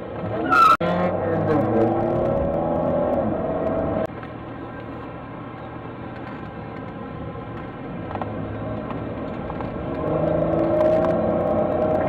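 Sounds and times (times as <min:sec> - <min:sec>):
car engine accelerating: 0:00.2 - 0:04.1, 0:08.1 - 0:12.0.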